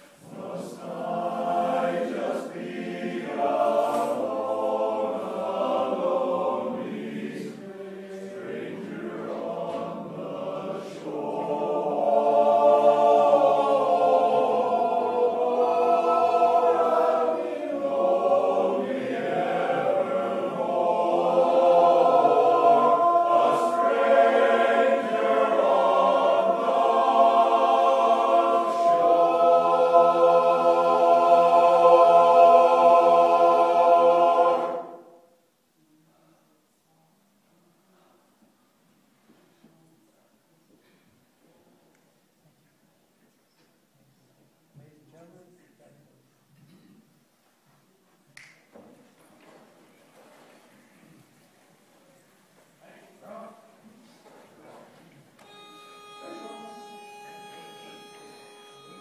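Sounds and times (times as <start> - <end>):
men's chorus singing a cappella: 0.2 - 35.3.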